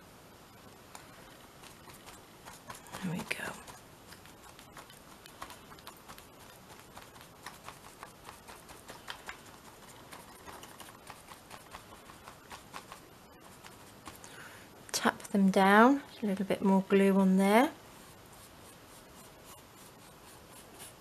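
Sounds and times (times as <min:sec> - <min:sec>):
paintbrush dabbing on paper: 0:00.9 - 0:14.3, 0:17.9 - 0:21.0.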